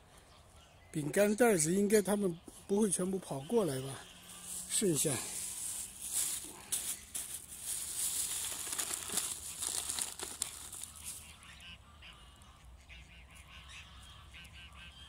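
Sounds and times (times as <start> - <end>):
plastic bag crinkling: 5.4 - 11.2
faint waterfowl calls: 10.5 - 15.0.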